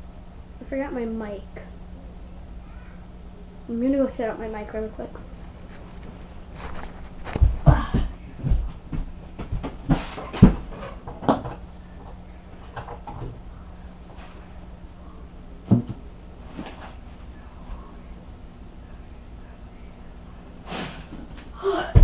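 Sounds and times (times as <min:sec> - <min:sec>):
shuffling: 0:04.7 - 0:10.9.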